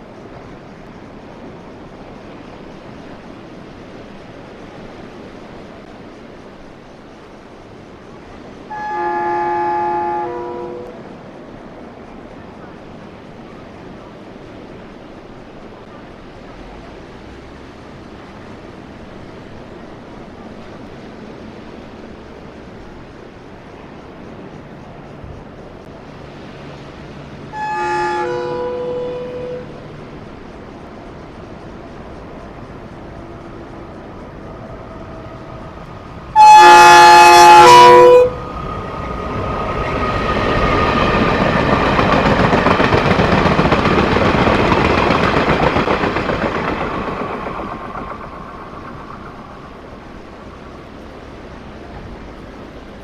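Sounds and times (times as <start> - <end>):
sea surf: 0.0 - 53.0
wind: 0.0 - 53.0
train horn: 8.7 - 11.0, 27.5 - 29.9, 36.3 - 38.6.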